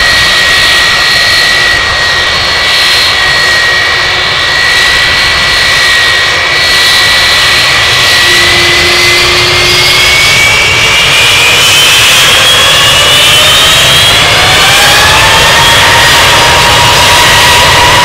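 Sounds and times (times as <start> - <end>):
jet engine roar with whine: 0.0 - 18.0.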